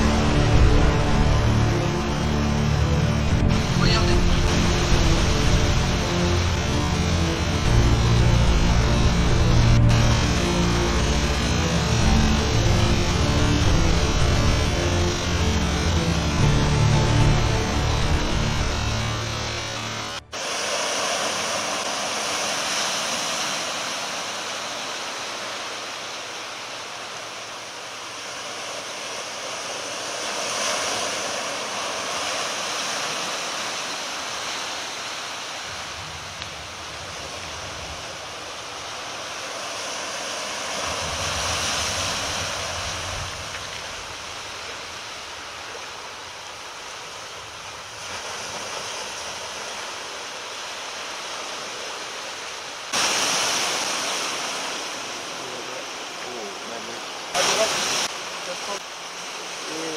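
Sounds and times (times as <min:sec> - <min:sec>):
rain rushing: 0:00.0 - 0:28.2, 0:40.5 - 0:48.0, 0:49.9 - 0:59.9.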